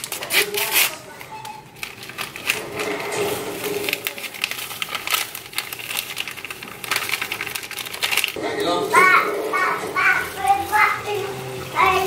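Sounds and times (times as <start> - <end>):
paper packet crackling: 0.0 - 12.0.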